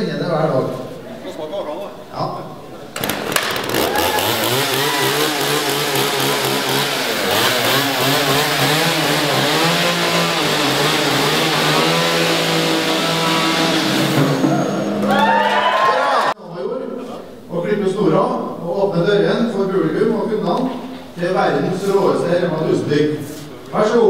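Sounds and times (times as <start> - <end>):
chainsaw revving: 3.0 - 15.1.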